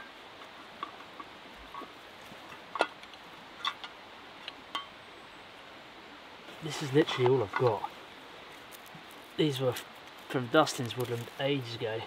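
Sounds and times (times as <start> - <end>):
steady low hiss: 0.0 - 12.0
bark tinder crackling: 6.5 - 12.0.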